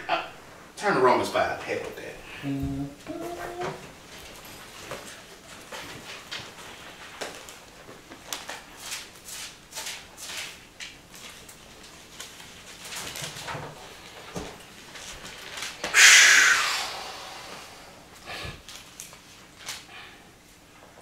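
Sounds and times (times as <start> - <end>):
book handling rustle: 4.3 - 15.9.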